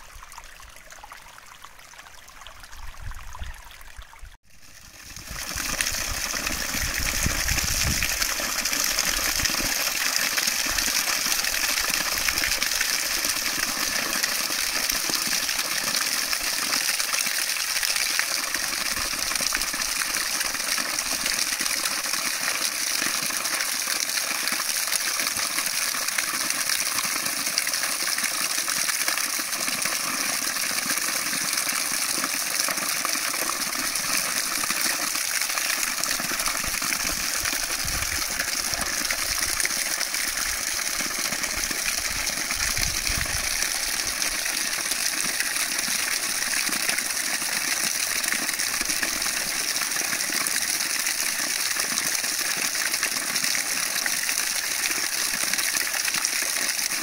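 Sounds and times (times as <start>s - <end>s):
flowing water rushing: 0.0s - 57.0s.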